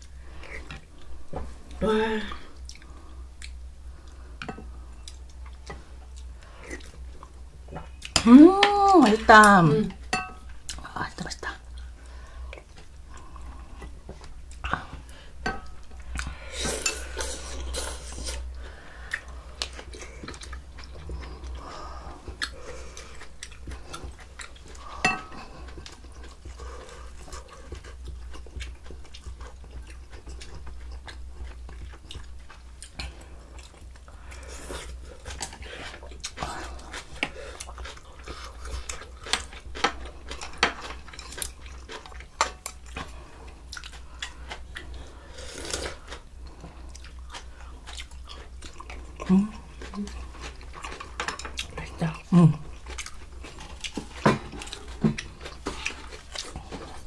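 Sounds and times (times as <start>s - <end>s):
chewing: 2.5s - 8.9s, 10.5s - 57.0s.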